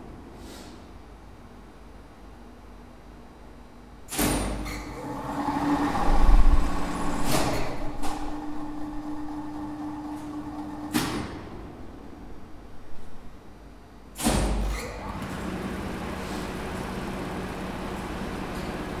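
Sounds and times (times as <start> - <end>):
winch motor humming: 5.0 - 11.0.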